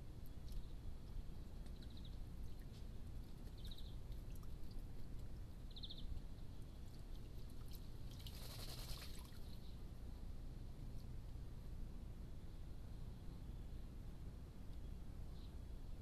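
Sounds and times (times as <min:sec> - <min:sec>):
light ticks: 0:00.2 - 0:05.5, 0:14.7 - 0:14.9
pigeons splashing in water: 0:06.9 - 0:09.5.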